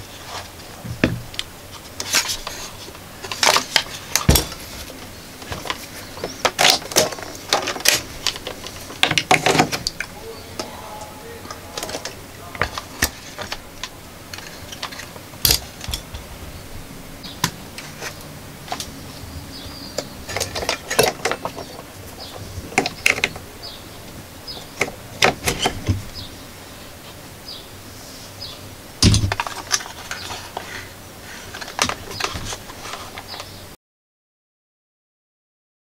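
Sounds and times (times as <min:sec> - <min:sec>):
loud thump: 0:00.8 - 0:01.3.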